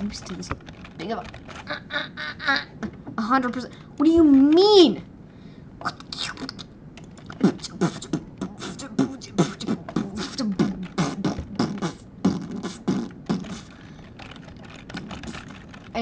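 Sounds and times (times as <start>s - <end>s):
boy making vocal mouth sounds: 1.6s - 2.8s, 5.8s - 13.8s.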